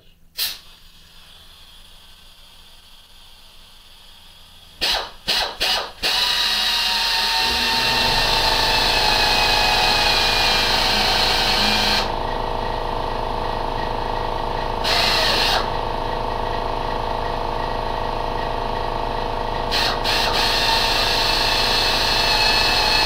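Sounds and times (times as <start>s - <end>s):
electric drill whining: 4.7s - 12.2s, 14.8s - 15.8s, 19.7s - 23.0s.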